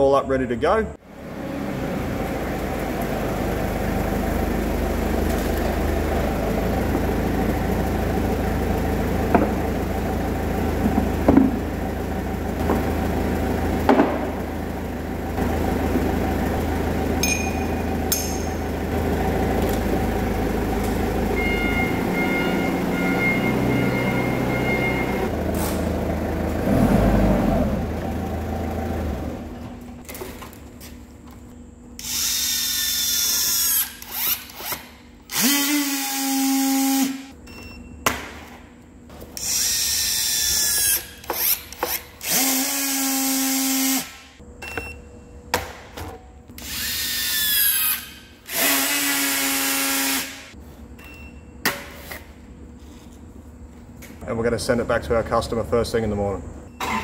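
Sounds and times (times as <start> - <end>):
forklift engine running: 1.0 - 45.4.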